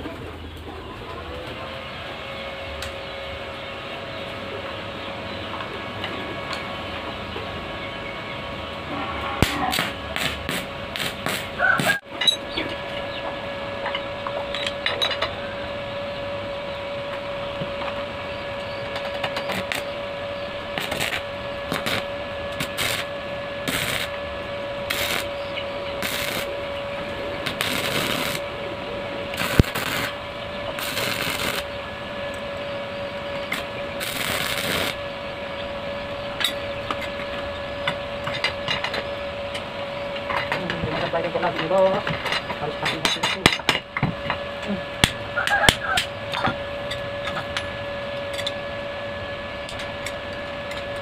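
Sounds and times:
steady hum: 0.0 - 51.0
welding arc crackling: 9.4 - 12.0, 19.0 - 35.0.

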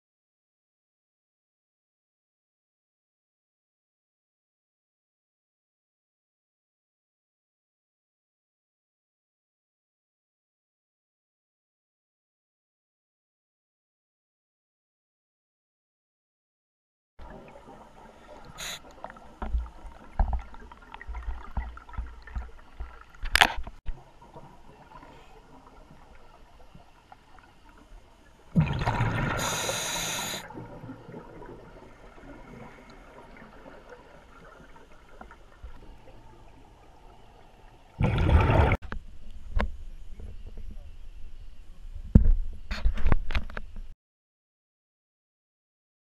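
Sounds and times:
water movement: 17.2 - 41.0
gurgling rush of exhaled bubbles: 28.5 - 36.4, 38.0 - 38.8.

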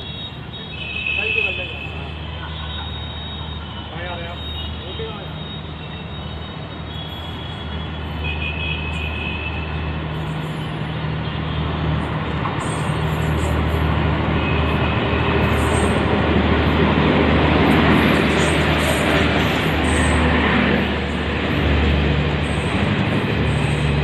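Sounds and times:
express train rumbling past: 11.7 - 24.0.

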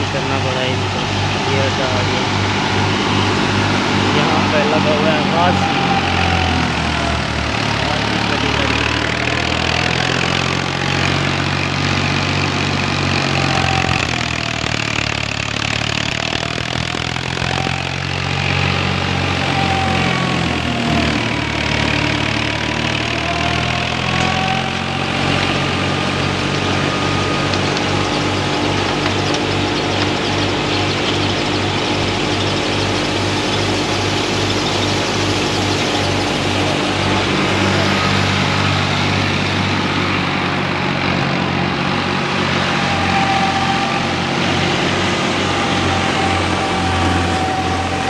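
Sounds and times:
thresher high whine: 0.0 - 48.0
tractor engine running: 0.0 - 48.0.

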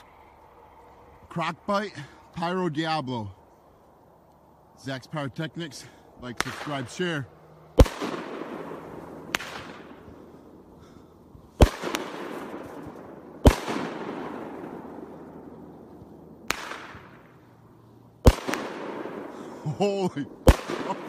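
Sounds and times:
firework booms: 7.8 - 10.2, 11.6 - 17.3, 18.2 - 19.6, 20.3 - 21.0.

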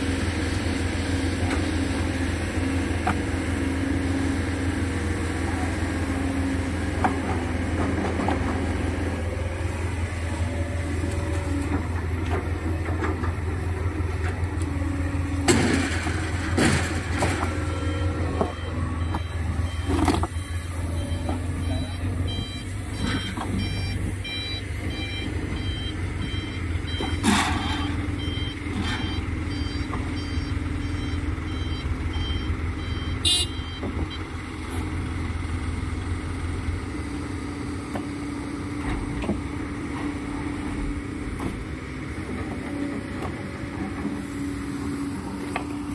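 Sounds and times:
diesel truck engine running: 0.0 - 45.9
short high-pitched beeps: 17.9 - 27.2, 28.2 - 33.9.

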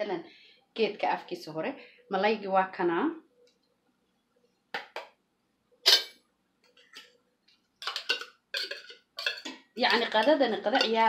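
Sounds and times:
metal clinking against glass: 7.8 - 10.1.

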